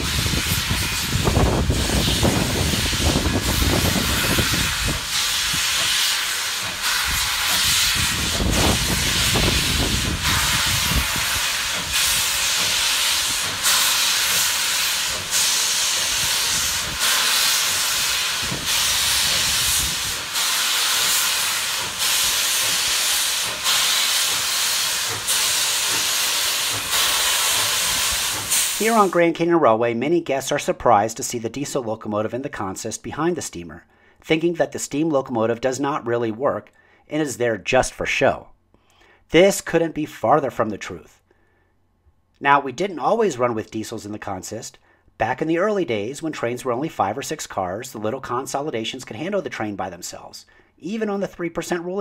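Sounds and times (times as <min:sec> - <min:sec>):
steam hissing: 0:00.0 - 0:29.4.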